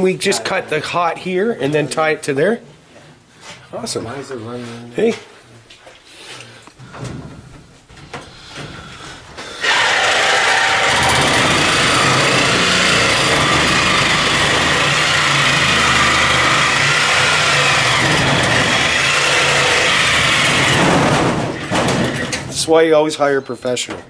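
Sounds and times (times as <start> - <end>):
motor humming and whining: 9.7 - 20.8.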